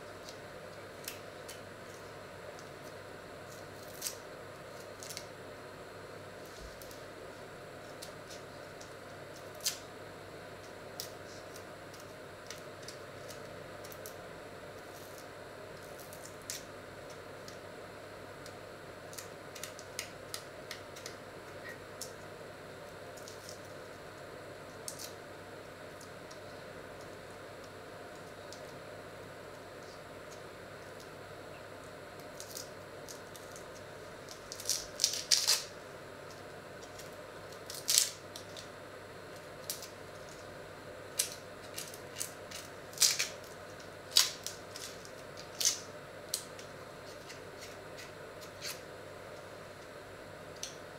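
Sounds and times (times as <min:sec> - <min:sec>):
low background hum: 0:00.0 - 0:50.9
onion skin crackling: 0:01.0 - 0:05.3, 0:07.8 - 0:09.9, 0:32.2 - 0:35.7, 0:36.3 - 0:38.7, 0:41.1 - 0:48.8.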